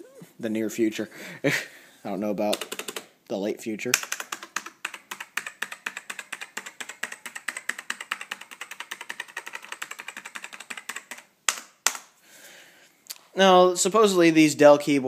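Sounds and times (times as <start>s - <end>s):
keyboard keys clacking: 4.0s - 11.2s.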